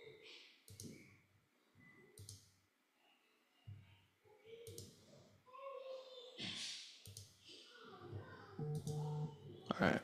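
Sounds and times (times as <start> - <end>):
faint computer mouse clicks: 2.2 - 2.5, 7.0 - 7.3.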